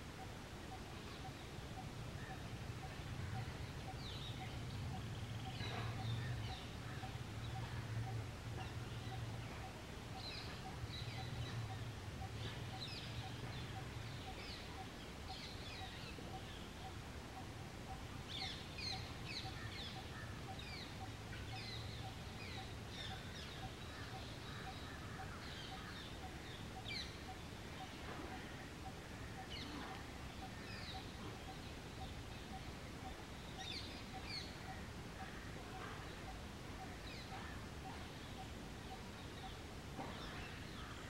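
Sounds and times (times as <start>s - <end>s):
birds chirping: 0.1s - 41.0s.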